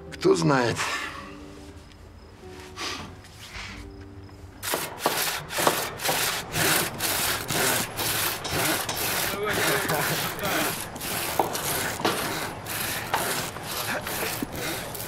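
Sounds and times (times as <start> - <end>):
soft background music: 0.0 - 15.0
rhythmic rasping strokes: 4.6 - 15.0.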